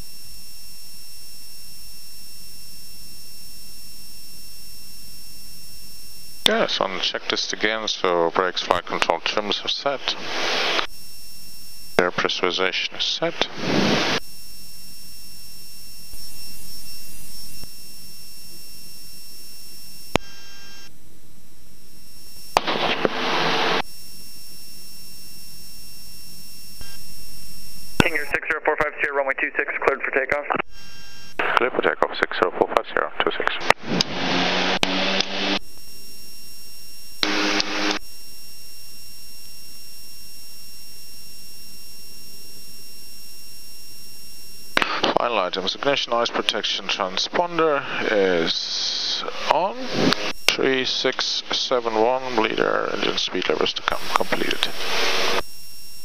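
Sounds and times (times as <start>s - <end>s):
intercom hiss with high whine: 0.0s - 56.0s
radio static burst: 4.2s - 21.0s, 21.8s - 56.0s
short buzz: 33.6s - 45.2s.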